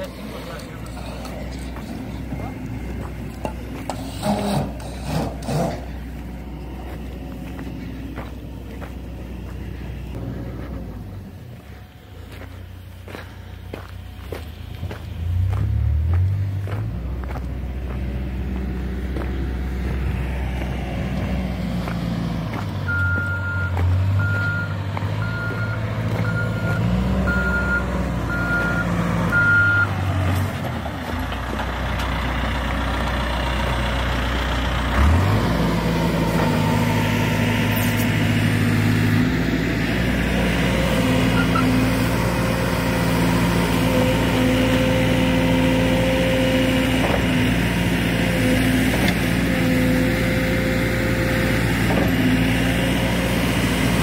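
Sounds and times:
diesel engine running: 0.0 - 54.0
reversing alarm beeping: 22.8 - 29.9.

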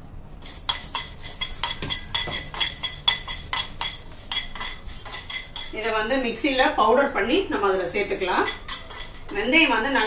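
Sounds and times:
metal spoon clinking in pan: 0.4 - 5.9, 8.4 - 9.6.

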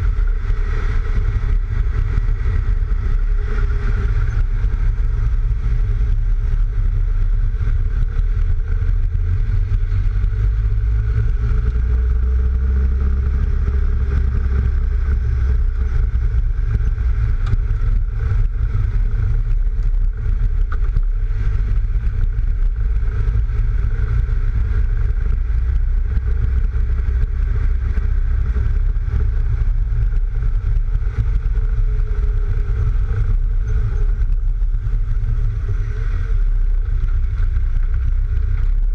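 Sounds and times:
car engine running: 0.0 - 38.9
tyre and road noise: 0.0 - 38.9
wind buffeting on microphone: 0.0 - 38.9.

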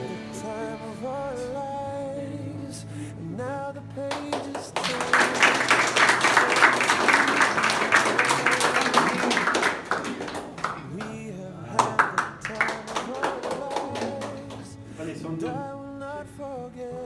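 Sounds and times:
background music: 0.0 - 17.0
people clapping: 4.0 - 14.8.

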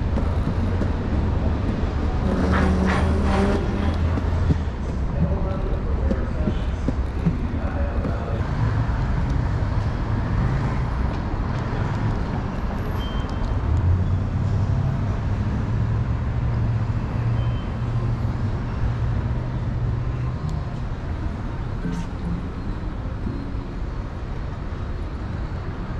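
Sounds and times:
low engine hum: 0.0 - 12.6
road traffic: 0.0 - 25.9.

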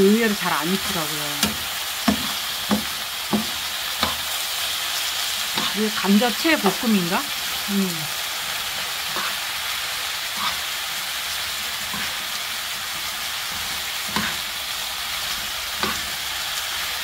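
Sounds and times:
vegetables sizzling in oil: 0.0 - 17.0
spoon knocking against pan: 1.4 - 4.2.

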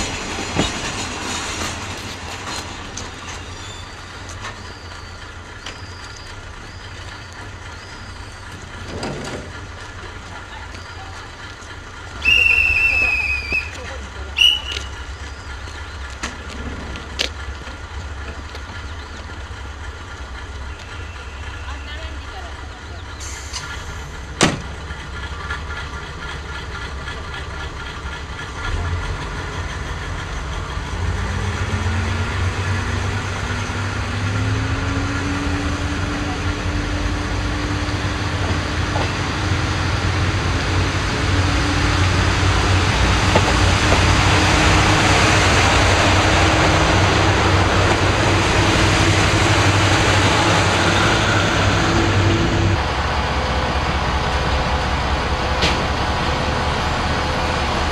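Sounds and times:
diesel railcar engines: 0.0 - 57.9.

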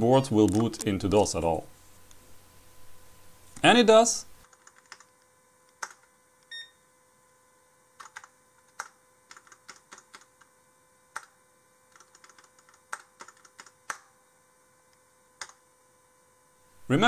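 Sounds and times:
faint steady hum: 0.0 - 17.0
keyboard keys clicking: 12.0 - 14.0.

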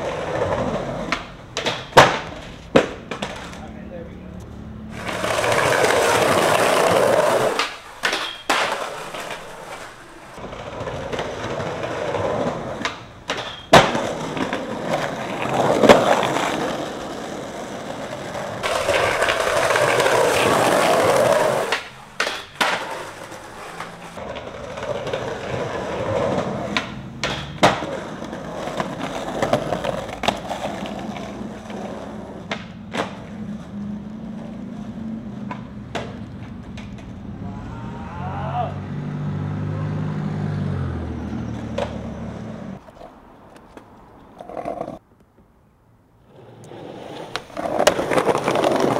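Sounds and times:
skateboard hitting the ground: 0.0 - 3.6, 4.9 - 33.7, 34.3 - 37.3, 41.6 - 42.0, 46.6 - 48.9
skateboard wheels rolling on pavement: 0.0 - 48.9.

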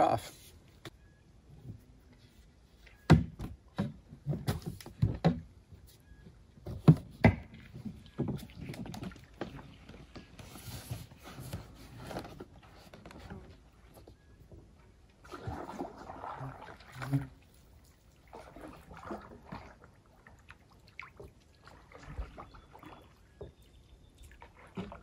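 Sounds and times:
canoe paddling water sounds: 0.0 - 25.0
knocks and thumps against canoe: 2.8 - 17.6, 18.3 - 20.0, 20.9 - 25.0.

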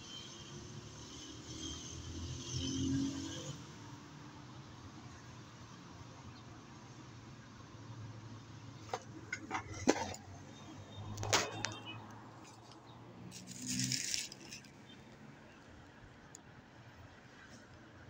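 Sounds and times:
plastic packaging rustle: 13.3 - 14.8.

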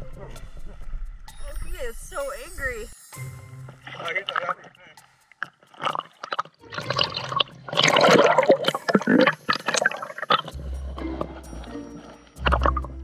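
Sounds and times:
music: 0.0 - 13.0
water splashing and gurgling: 3.9 - 4.7, 5.4 - 13.0.

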